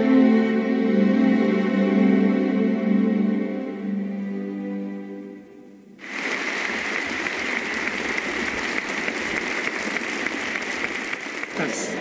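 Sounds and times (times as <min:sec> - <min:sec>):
audience applause: 0:06.0 - 0:12.0.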